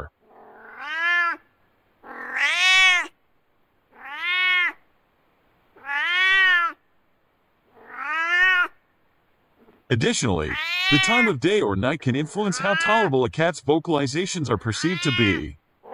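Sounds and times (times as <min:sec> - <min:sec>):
cat meowing: 0:00.3 - 0:01.4, 0:02.0 - 0:03.1, 0:03.9 - 0:04.8, 0:05.8 - 0:06.8, 0:07.8 - 0:08.8, 0:10.4 - 0:11.3, 0:12.5 - 0:13.1, 0:14.8 - 0:15.9.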